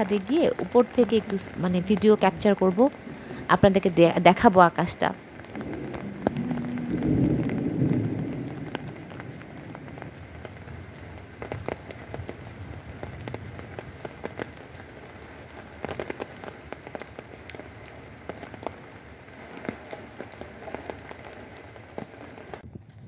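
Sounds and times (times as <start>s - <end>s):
light rain falling: 0.0s - 22.6s
sharp ticks of raindrops: 0.0s - 22.6s
low rush: 5.2s - 10.7s.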